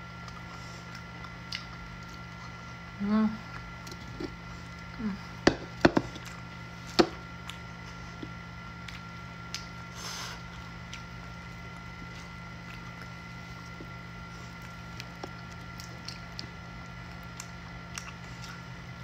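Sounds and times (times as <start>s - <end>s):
steady hum: 0.0s - 19.0s
chewing clicks and smacks: 0.2s - 2.5s, 7.4s - 9.8s, 10.8s - 18.8s.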